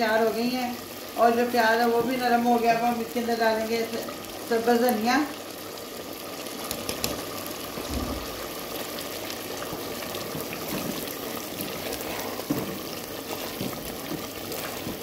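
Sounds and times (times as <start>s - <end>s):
curry simmering and bubbling: 0.0s - 15.0s
wooden spoon stirring: 9.7s - 15.0s.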